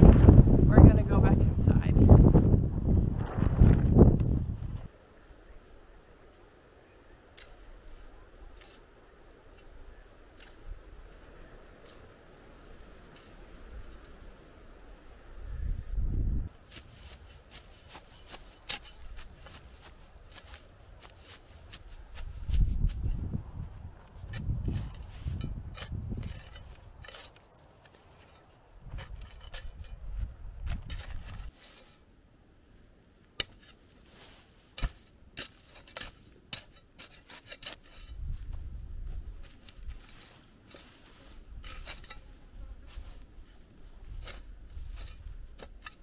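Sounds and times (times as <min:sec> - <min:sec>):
wind rumble on microphone: 0:00.0 - 0:04.9, 0:10.7 - 0:16.6, 0:21.9 - 0:27.1, 0:28.8 - 0:31.5, 0:38.0 - 0:40.2
spade scraping into dry soil: 0:07.3 - 0:14.2, 0:16.6 - 0:32.2, 0:33.3 - 0:46.0.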